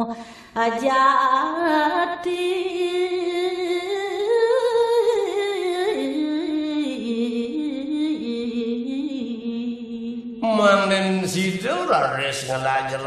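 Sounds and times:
person singing ornamented verse: 6.9s - 11.6s.

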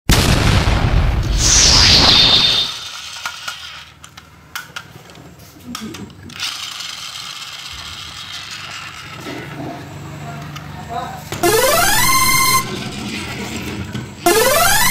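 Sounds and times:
falling whoosh: 1.1s - 2.9s
toy train plastic clicks and rattles: 2.8s - 9.6s.

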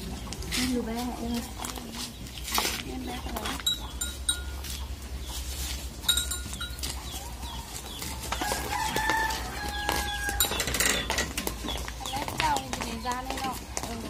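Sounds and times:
rooster crowing: 7.2s - 10.8s.

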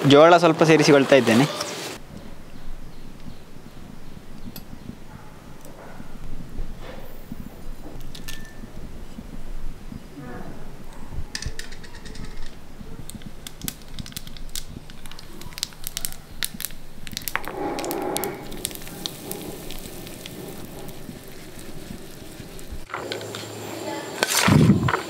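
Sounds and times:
seeds spluttering in hot oil: 11.4s - 23.6s
oil sizzling: 11.4s - 24.4s.

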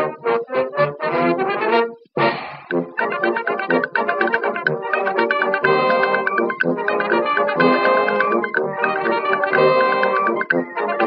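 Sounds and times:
upbeat music with rapid short notes: 2.3s - 11.0s.

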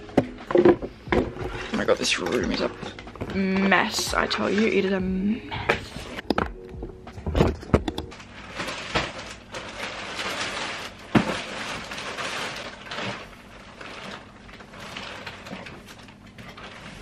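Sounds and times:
packages and clothes rustling: 0.0s - 17.0s.

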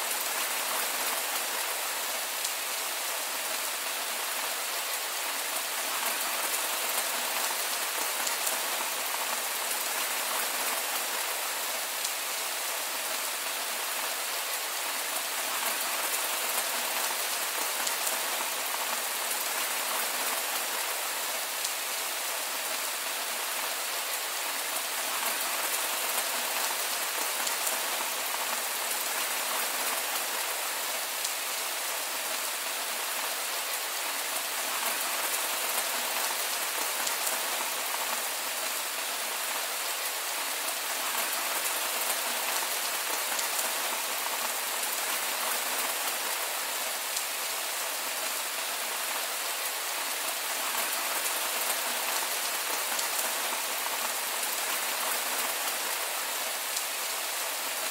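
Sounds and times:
heavy rain falling: 0.0s - 57.9s.

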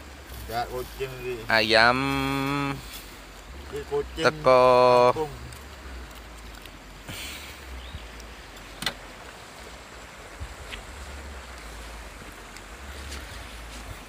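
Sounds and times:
wind buffeting microphone: 7.6s - 14.0s.

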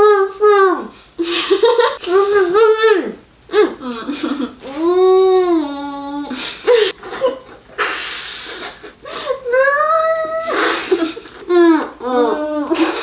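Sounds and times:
breathy wheezing laughter: 10.4s - 11.3s.

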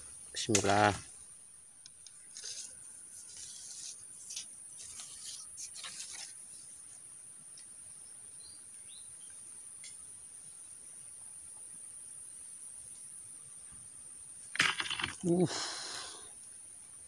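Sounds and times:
faint bird chirps: 7.9s - 9.6s.

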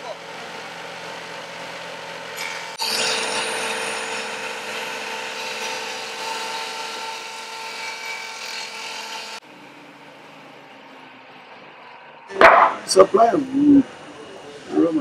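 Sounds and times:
workshop background: 0.0s - 15.0s
table saw cutting wood: 0.1s - 13.5s.

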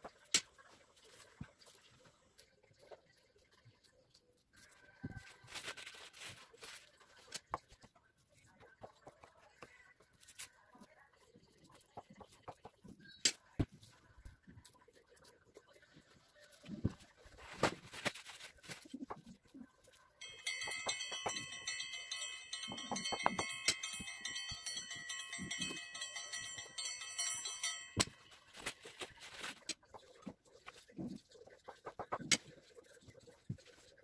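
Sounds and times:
steady high ringing tone: 20.2s - 28.7s.

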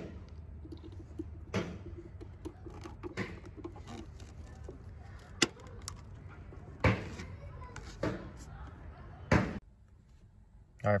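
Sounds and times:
hands tapping and scraping plastic: 0.0s - 8.6s.

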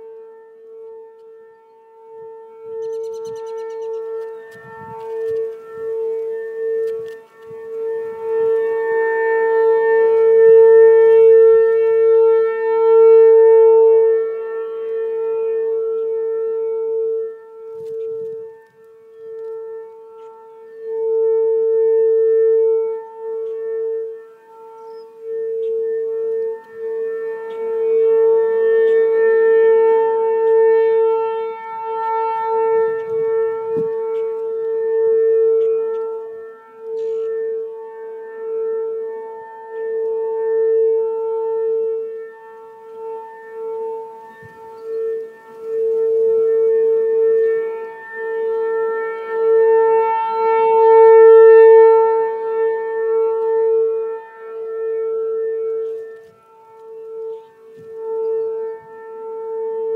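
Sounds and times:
rotating warning siren: 0.0s - 59.9s.

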